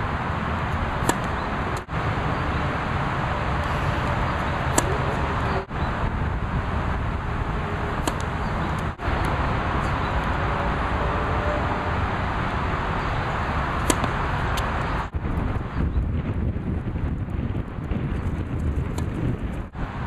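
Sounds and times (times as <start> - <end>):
wind rumble on microphone: 0.0 - 20.0
tennis racket hitting ball: 0.7 - 1.9, 3.5 - 5.6, 7.6 - 9.0, 13.6 - 15.0.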